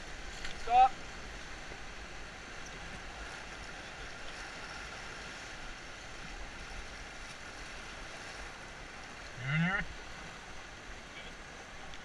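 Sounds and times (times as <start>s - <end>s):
river whitewater rushing: 0.0s - 12.0s.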